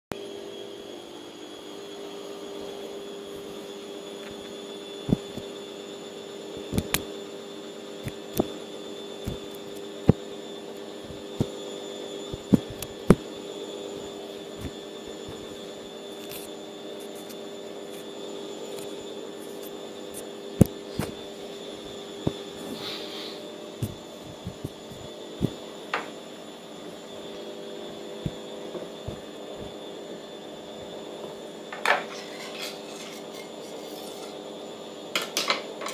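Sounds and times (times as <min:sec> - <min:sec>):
washing machine humming: 0:00.2 - 0:35.9
sharp taps and clicks: 0:06.6 - 0:07.1.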